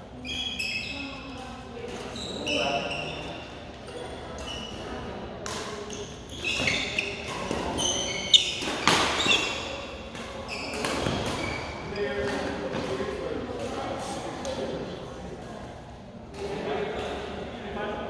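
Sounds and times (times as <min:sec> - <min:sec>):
court shoes squeaking: 0:00.2 - 0:13.9.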